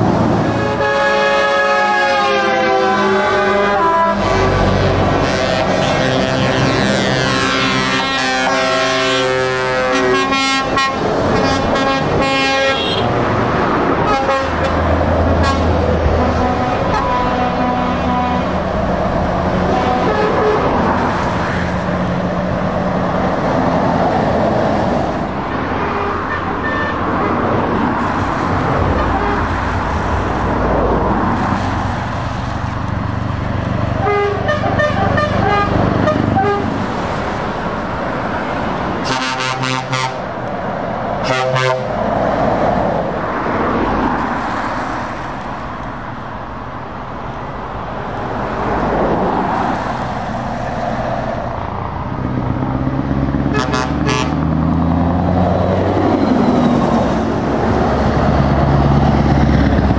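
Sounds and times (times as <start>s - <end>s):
heavy lorries and cars passing: 0.0s - 59.9s
truck diesel engines running: 0.0s - 59.9s
truck air horns: 0.4s - 13.2s, 14.0s - 18.7s, 19.5s - 21.2s, 25.8s - 27.4s, 29.0s - 29.7s, 34.0s - 36.8s, 39.0s - 40.4s, 41.2s - 42.0s, 53.4s - 54.6s.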